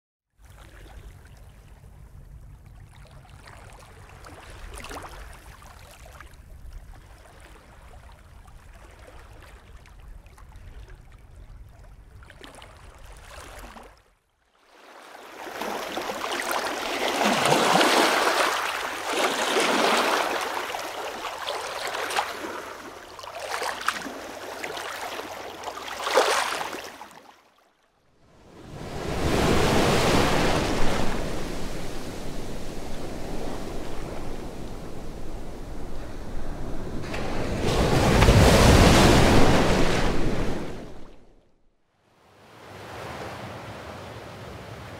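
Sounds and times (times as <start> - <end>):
ocean waves washing: 14.7 - 27.2, 28.3 - 41.5.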